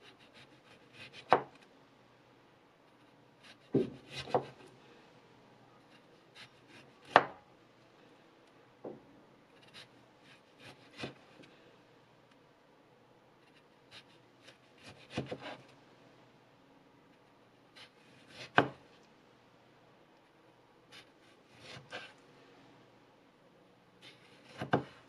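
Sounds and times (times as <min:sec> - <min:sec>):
knife knocking on wooden board: 0:03.7 - 0:04.5.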